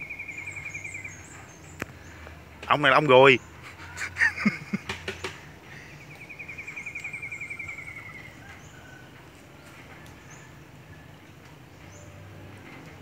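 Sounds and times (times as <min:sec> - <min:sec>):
bird trilling: 0:00.0 - 0:01.6, 0:05.7 - 0:08.9.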